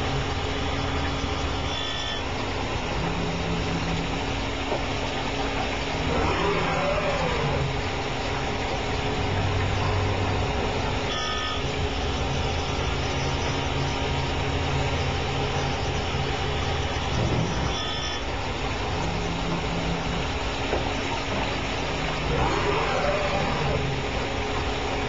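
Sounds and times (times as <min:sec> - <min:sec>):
grinding machine hum: 0:00.0 - 0:25.0
grinding wheel and coolant hiss: 0:00.0 - 0:25.0.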